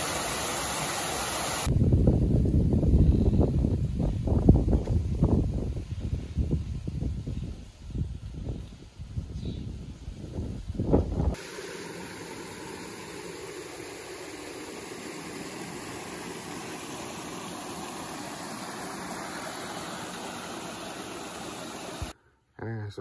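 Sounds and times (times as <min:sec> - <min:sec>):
steady rushing noise: 0:11.2 - 0:22.2.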